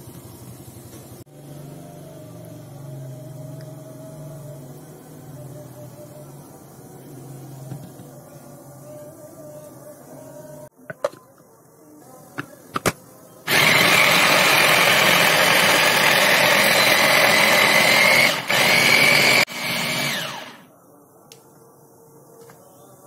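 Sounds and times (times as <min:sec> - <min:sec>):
food chopper motor running: 0:13.5 - 0:20.6.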